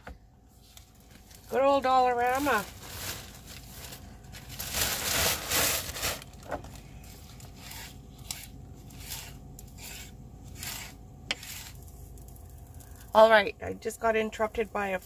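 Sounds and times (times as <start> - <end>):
plastic bag crinkling: 0.6 - 9.4.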